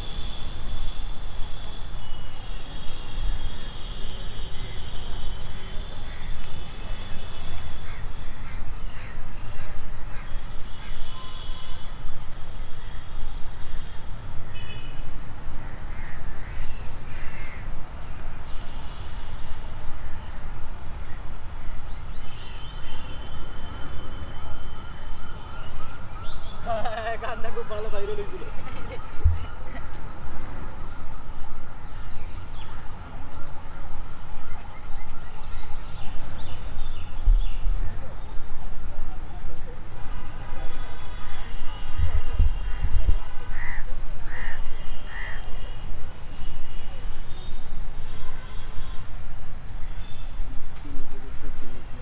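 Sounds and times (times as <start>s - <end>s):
crows cawing: 15.6s - 17.7s, 43.5s - 45.5s.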